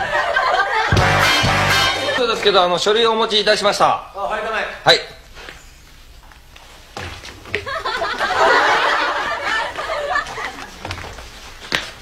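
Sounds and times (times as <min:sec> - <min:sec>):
audience laughing: 0:00.0 - 0:02.4, 0:07.5 - 0:10.8.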